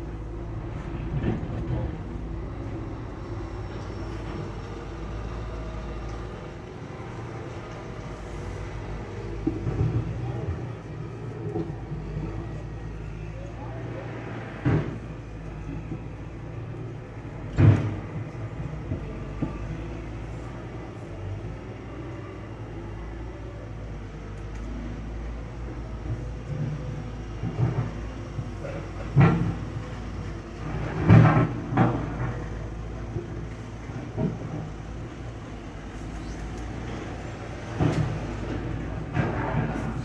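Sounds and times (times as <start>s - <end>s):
diesel truck rumble: 0.0s - 40.0s.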